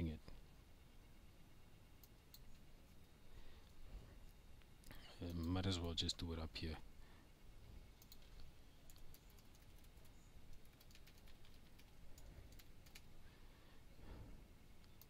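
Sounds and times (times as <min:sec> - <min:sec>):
typing on keyboard: 0:08.0 - 0:13.1.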